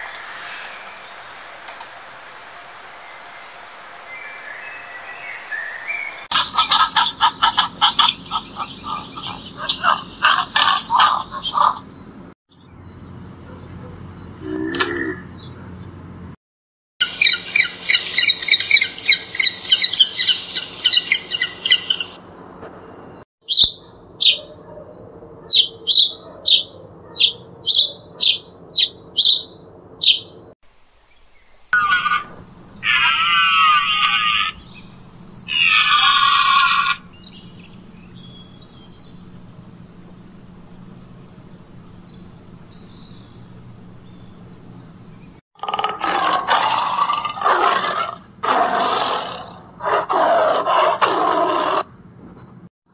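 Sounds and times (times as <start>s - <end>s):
penguins trumpeting: 31.8s - 34.7s, 35.5s - 37.1s
long wavering animal calls: 31.8s - 37.3s
tiger roaring: 35.5s - 37.0s, 45.6s - 51.9s.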